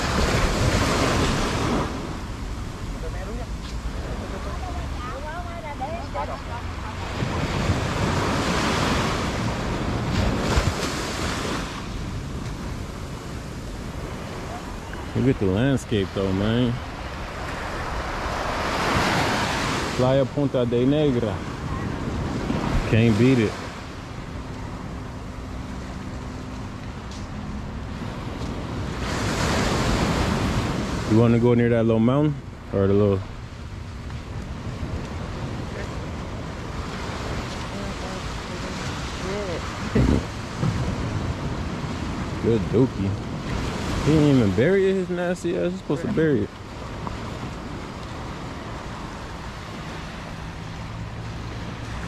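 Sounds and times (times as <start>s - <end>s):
wind on microphone: 0.0s - 5.0s, 6.0s - 20.0s, 21.0s - 26.8s, 34.2s - 44.7s
waves washing up a beach: 0.0s - 52.0s.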